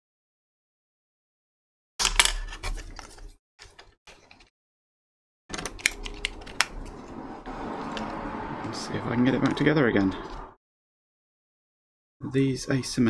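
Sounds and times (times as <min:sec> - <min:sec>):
plastic parts clicking: 0:02.0 - 0:04.5, 0:05.5 - 0:07.1.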